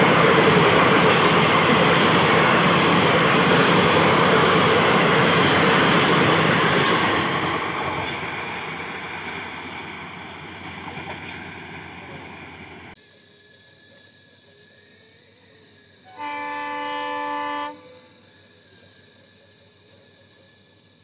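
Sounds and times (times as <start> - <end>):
passing train rumble: 0.0 - 13.0
locomotive air horn blast: 16.1 - 18.0.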